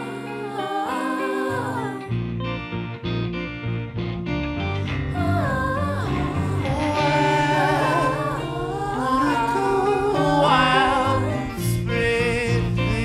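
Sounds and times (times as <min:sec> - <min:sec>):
song with singing voice: 0:00.0 - 0:02.2, 0:04.9 - 0:13.0.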